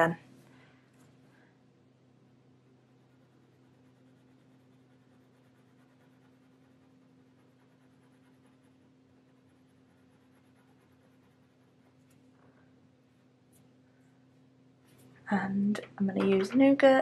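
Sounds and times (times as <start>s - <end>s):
steady low hum: 0.0s - 17.0s
pencil scratching on paper: 2.9s - 12.0s.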